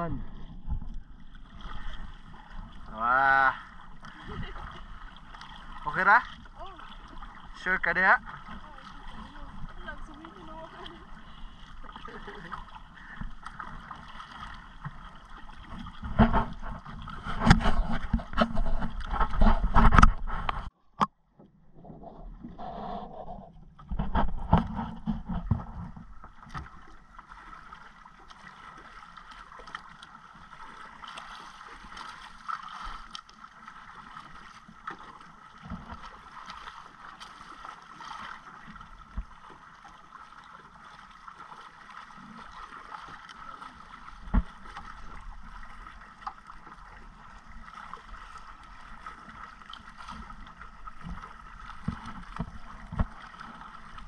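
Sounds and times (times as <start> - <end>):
choppy sea: 0.0 - 54.0
knocks and bumps on boat: 14.8 - 20.7, 23.6 - 26.8, 44.2 - 45.2, 50.8 - 54.0.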